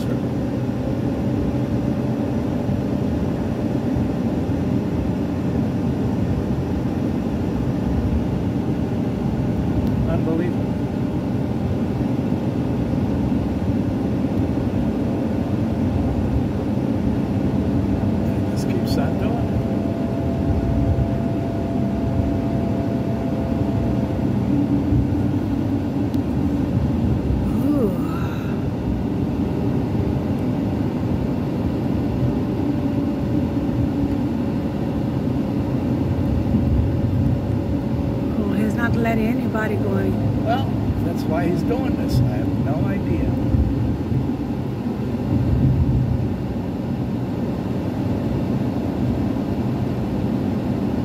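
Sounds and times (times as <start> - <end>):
engine and road noise in vehicle: 0.0 - 51.0
faint steady hum: 11.2 - 51.0
car cabin road noise: 15.8 - 28.2.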